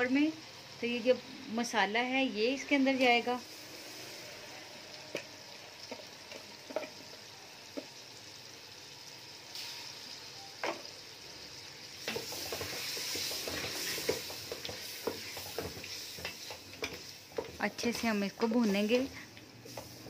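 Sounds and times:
food sizzling in oil: 0:00.0 - 0:20.0
wooden spoon knocking and scraping pot: 0:05.1 - 0:07.1, 0:12.1 - 0:19.2.

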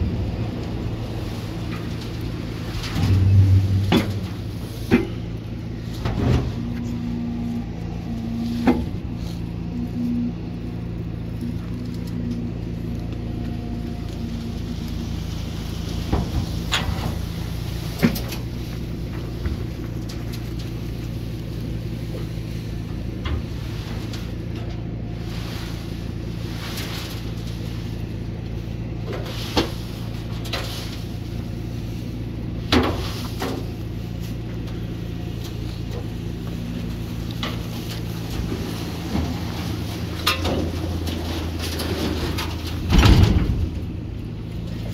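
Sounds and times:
engine running: 0:00.0 - 0:44.9
metal knocks and scrapes: 0:01.6 - 0:07.1.

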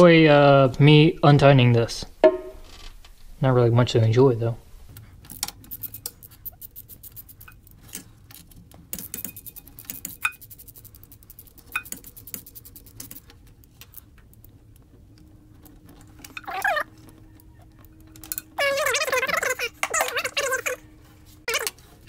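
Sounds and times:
ratchet wrench clicking: 0:05.3 - 0:08.0, 0:08.9 - 0:13.3
metal clinks: 0:05.3 - 0:13.2.

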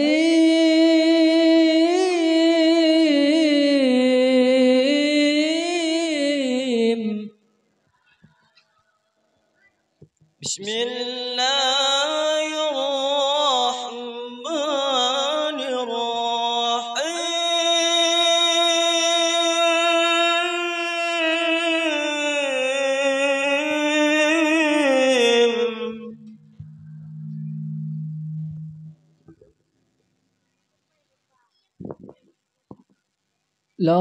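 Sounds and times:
man reciting in melodic chant: 0:00.0 - 0:07.4, 0:10.4 - 0:26.4.

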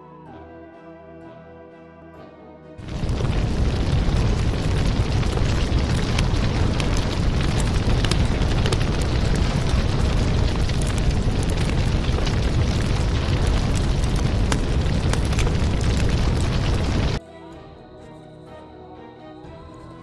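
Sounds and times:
fire roaring and crackling: 0:02.8 - 0:17.2.

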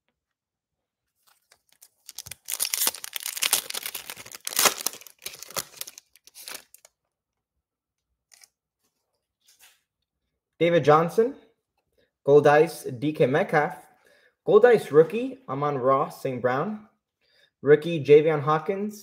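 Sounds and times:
foil wrapper ripping and crinkling: 0:01.2 - 0:06.9.

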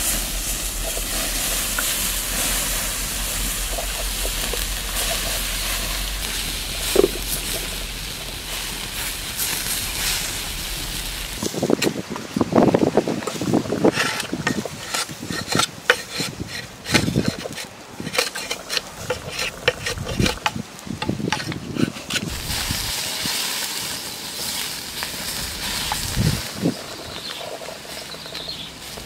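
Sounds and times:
meat sizzling on a grill: 0:00.0 - 0:11.7, 0:22.3 - 0:29.0
knife scraping bamboo: 0:13.2 - 0:20.6, 0:21.2 - 0:22.7.

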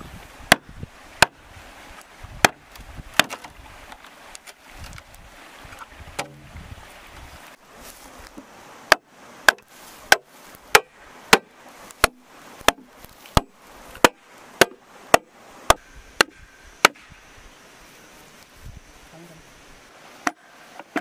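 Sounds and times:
machete chopping bamboo: 0:00.5 - 0:01.4, 0:02.4 - 0:03.6, 0:06.2 - 0:06.4, 0:08.9 - 0:17.2.

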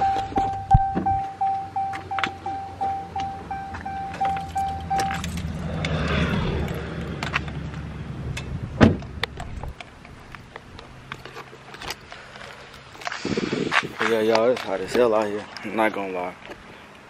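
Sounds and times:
vehicle warning chime dinging: 0:00.0 - 0:05.5
heavy thump: 0:08.8 - 0:09.1.

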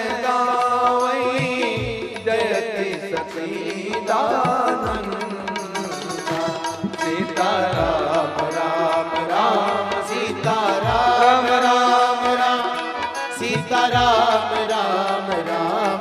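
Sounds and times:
voices singing a chant: 0:03.6 - 0:16.0.

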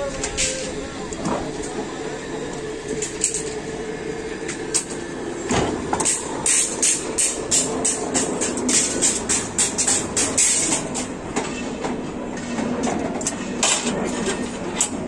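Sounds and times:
machine motor hum: 0:00.0 - 0:11.4.

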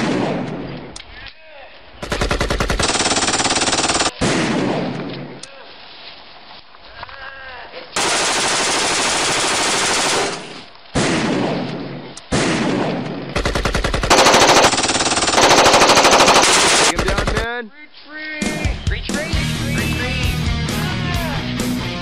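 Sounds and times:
machine-gun fire: 0:02.0 - 0:04.9, 0:08.0 - 0:11.5, 0:12.4 - 0:17.5.

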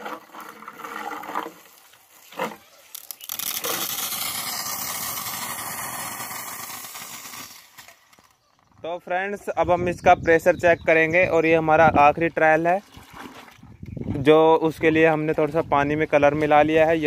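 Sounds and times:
water jet hissing: 0:02.9 - 0:08.0.

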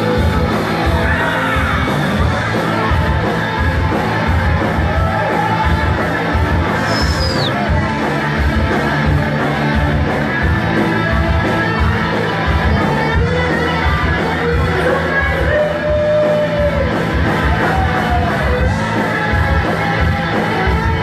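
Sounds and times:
crowd noise: 0:00.0 - 0:21.0
live rock band playing: 0:00.0 - 0:21.0
high falling whistle: 0:06.8 - 0:07.6.

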